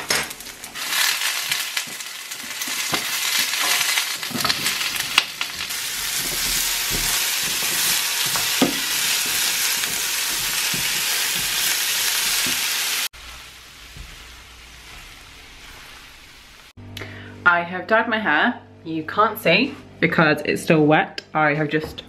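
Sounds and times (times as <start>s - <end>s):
vegetables sizzling in oil: 0.0s - 16.8s
spatula knocking and scraping pan: 1.4s - 12.7s.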